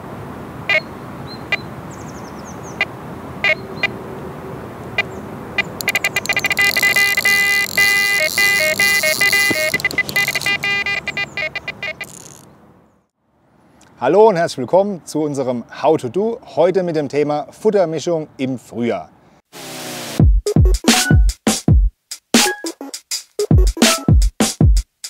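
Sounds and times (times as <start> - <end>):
electronic bite alarm bleeps: 5.0 - 12.4.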